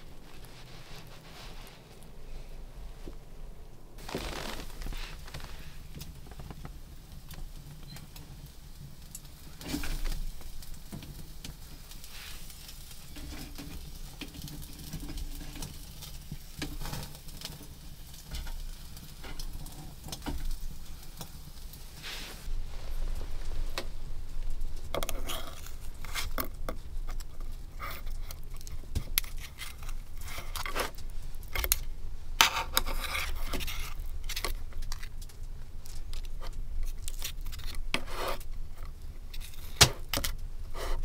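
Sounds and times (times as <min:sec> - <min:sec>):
wood stove crackling: 0:00.0 - 0:41.0
meat sizzling on a skewer: 0:08.3 - 0:26.4.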